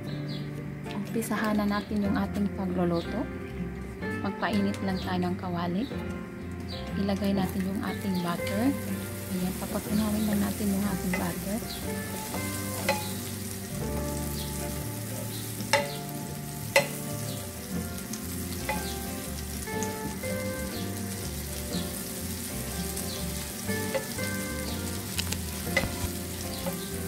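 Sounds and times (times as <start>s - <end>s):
butter sizzling in a frying pan: 7.4s - 27.0s
wooden spatula tapping pan: 9.6s - 13.3s, 15.5s - 21.2s, 23.4s - 27.0s.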